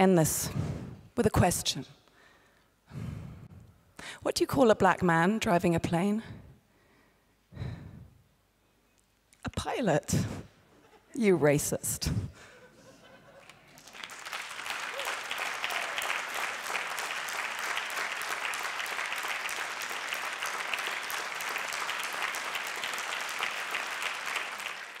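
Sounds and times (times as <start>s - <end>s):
audience applauding: 13.4s - 25.0s.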